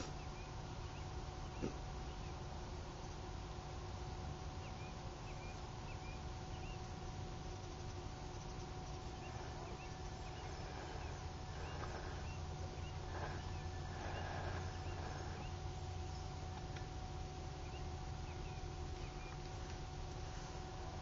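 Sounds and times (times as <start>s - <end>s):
steady low rumble: 0.0s - 21.0s
thin even hum: 4.7s - 21.0s.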